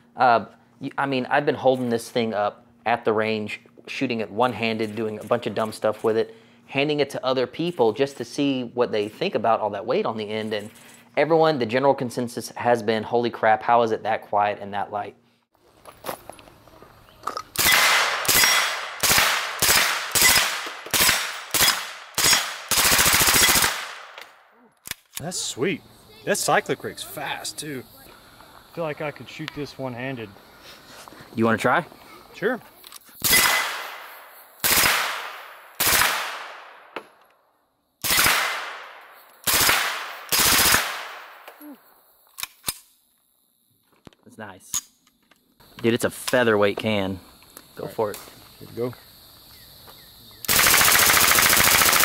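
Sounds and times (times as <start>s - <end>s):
gunshot echo: 17.6s - 24.2s, 33.2s - 37.0s, 38.0s - 41.4s
suppressed machine gun bursts: 50.5s - 52.0s.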